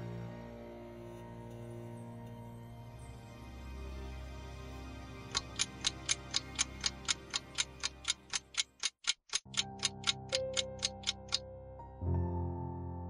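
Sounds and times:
soft background music: 0:00.0 - 0:13.0
clock ticking: 0:05.3 - 0:11.4.

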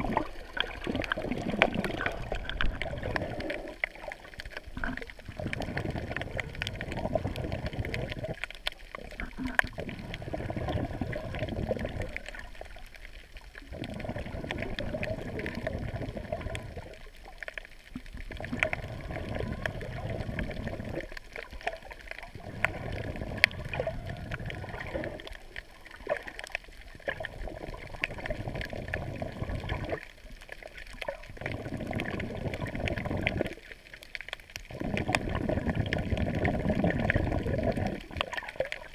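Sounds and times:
underwater rushing and sloshing: 0:00.0 - 0:38.9
faint clicks: 0:00.2 - 0:09.9, 0:11.8 - 0:28.7.

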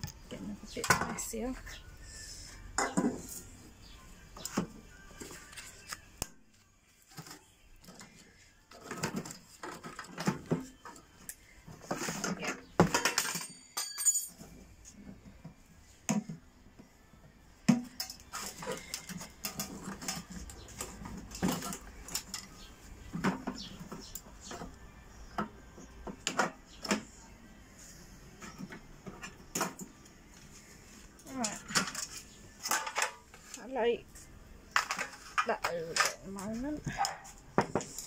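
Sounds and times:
metal and plastic parts rattling: 0:07.1 - 0:14.6, 0:17.7 - 0:24.6, 0:31.2 - 0:33.6, 0:34.7 - 0:36.8.

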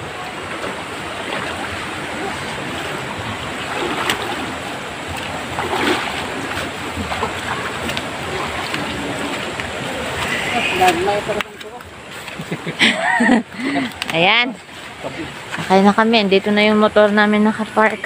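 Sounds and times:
person wading through water: 0:00.0 - 0:14.0
stream rushing: 0:00.0 - 0:18.0.

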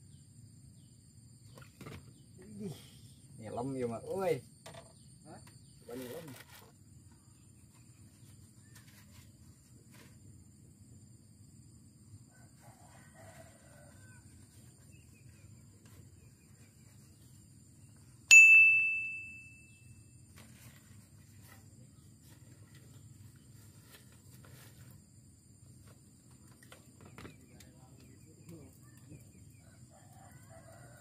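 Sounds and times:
faint outdoor background: 0:00.0 - 0:31.0
bell-like ding: 0:18.3 - 0:20.0.

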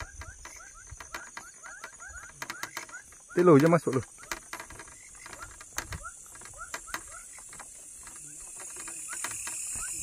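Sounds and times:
insects trilling: 0:00.0 - 0:10.0
sharp clicks: 0:00.0 - 0:10.0.

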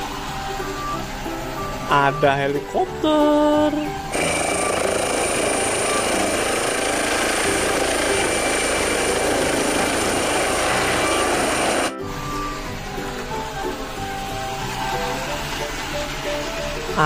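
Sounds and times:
helicopter rotor and turbine whine: 0:03.9 - 0:16.9.

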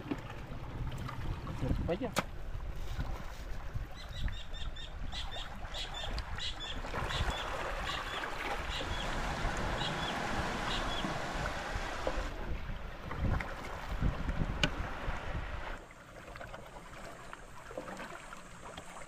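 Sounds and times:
wind rumble on microphone: 0:00.6 - 0:05.3, 0:06.0 - 0:15.8.

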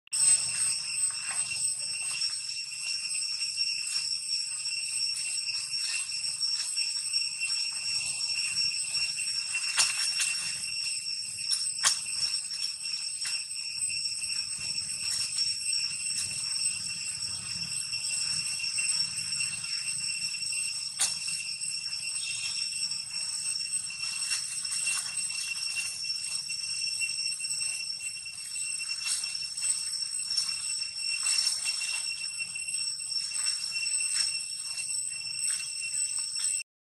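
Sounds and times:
high-pitched ringing drone: 0:00.1 - 0:36.6.

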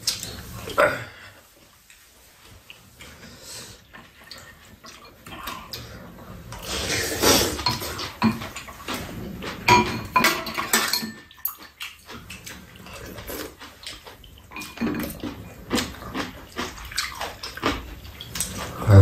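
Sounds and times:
slurping and chewing: 0:00.0 - 0:19.0
utensils clinking on ceramic bowls: 0:09.6 - 0:12.2, 0:14.5 - 0:15.2.

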